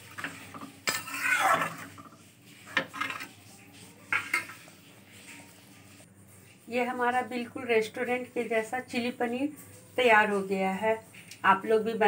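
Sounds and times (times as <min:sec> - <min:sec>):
metal spoon scraping in a pan: 0:00.0 - 0:11.1.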